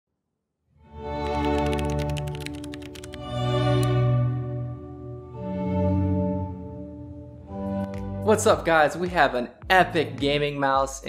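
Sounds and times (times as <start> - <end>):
orchestral string chords: 3.1 - 9.3.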